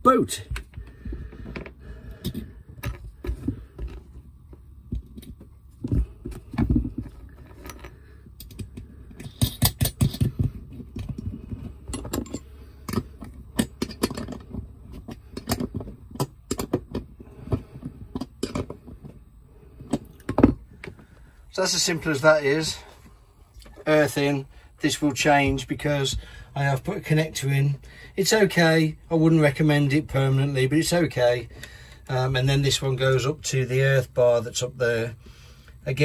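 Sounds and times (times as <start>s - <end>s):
metal tools clicking and clinking: 11.0s - 16.8s.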